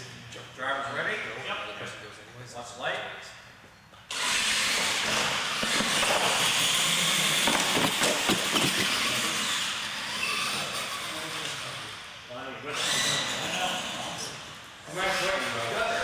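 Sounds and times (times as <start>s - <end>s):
toy truck motors whirring: 4.1s - 16.0s.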